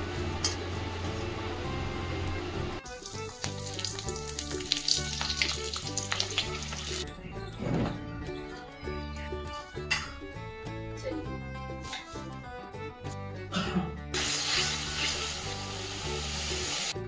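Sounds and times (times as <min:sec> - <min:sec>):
background music: 0:00.0 - 0:17.0
food sizzling: 0:00.2 - 0:07.0, 0:14.2 - 0:17.0.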